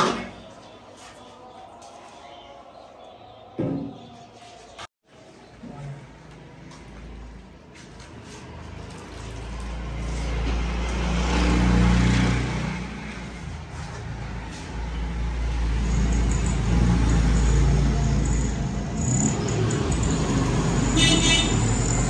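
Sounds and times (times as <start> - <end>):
vehicle engine passing by: 8.0 - 22.0.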